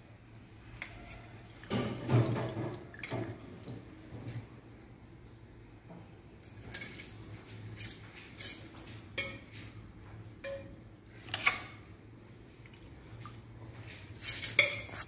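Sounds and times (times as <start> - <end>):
spoon scraping steel bowl: 0.8 - 1.6, 14.2 - 15.0.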